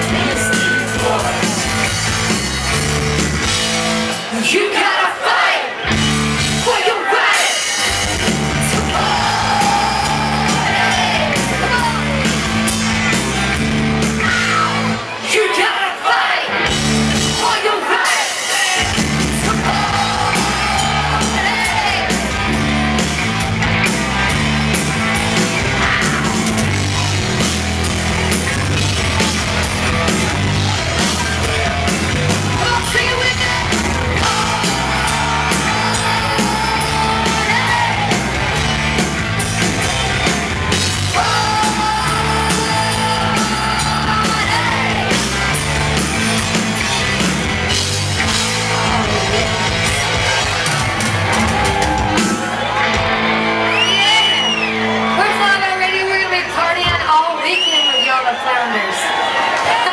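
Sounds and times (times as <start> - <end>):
live rock band playing: 0.0 - 4.7, 5.7 - 15.6, 16.5 - 57.6
woman singing: 35.4 - 38.0, 41.2 - 44.9.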